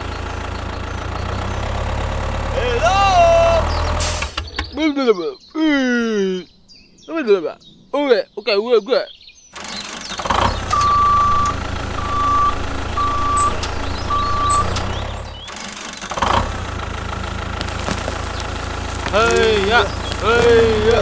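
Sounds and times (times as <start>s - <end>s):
tractor engine running: 0.0s - 4.8s, 9.6s - 21.0s
reversing beeps: 10.7s - 14.8s.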